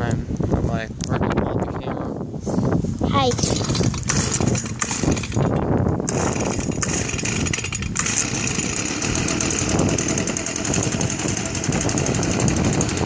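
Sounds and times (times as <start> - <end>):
leaf blower engine running: 3.3 - 13.0
recoil starter cord pulled: 3.3 - 13.0.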